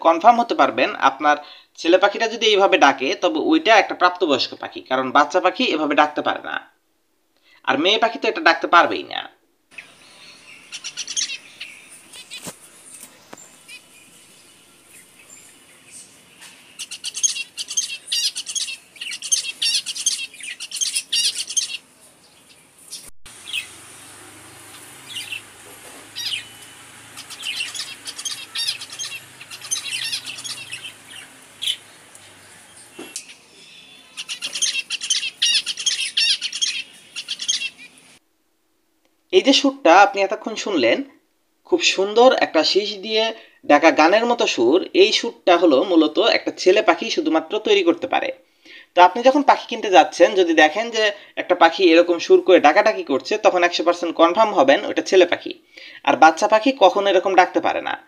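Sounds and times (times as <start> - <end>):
finch singing high-pitched song: 9.7 - 23.8, 24.6 - 25.5, 26.1 - 38.2.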